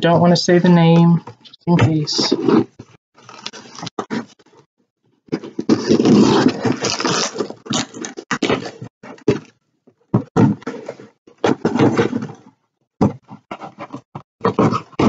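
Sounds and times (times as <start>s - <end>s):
scissors cutting packing tape: 5.5s - 8.7s.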